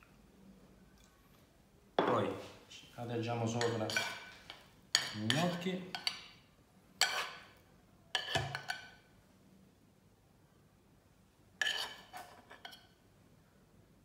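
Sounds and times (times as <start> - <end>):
metal spoon clinking on dishes: 3.5 - 6.4.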